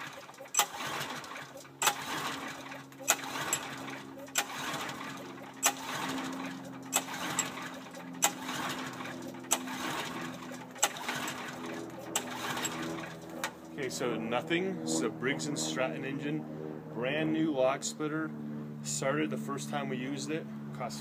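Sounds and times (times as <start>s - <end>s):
engine cranking without firing: 0.0s - 13.8s.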